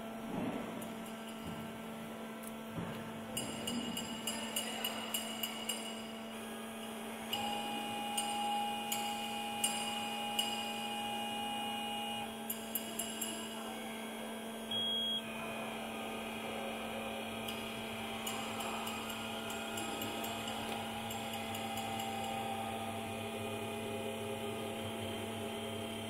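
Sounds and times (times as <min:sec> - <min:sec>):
steady electrical hum: 0:00.0 - 0:26.0
high motor whine: 0:14.7 - 0:26.0.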